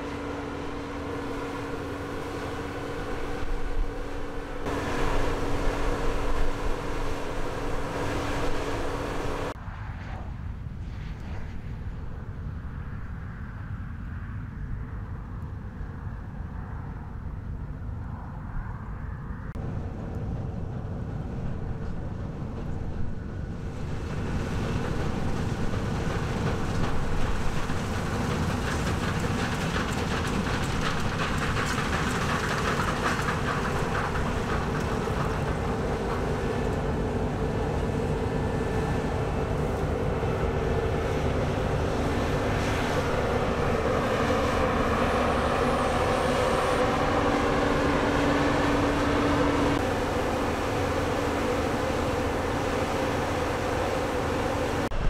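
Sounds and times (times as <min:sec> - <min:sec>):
combine harvester rumble: 0:00.0 - 0:09.6, 0:19.6 - 0:55.0
rattling clatter: 0:24.8 - 0:36.8.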